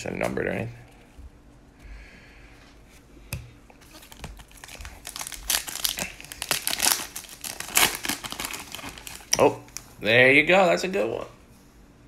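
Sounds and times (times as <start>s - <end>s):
foil wrapper crinkling and tearing: 3.8s - 9.9s.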